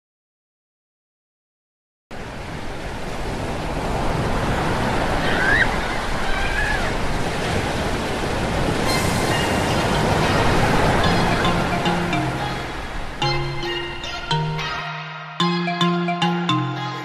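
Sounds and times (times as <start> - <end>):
waves on rocky shore: 2.2 - 13.6.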